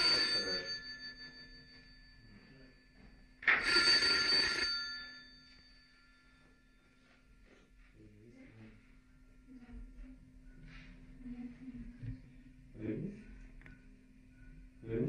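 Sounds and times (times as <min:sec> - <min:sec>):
bell ringing: 0:00.0 - 0:06.8.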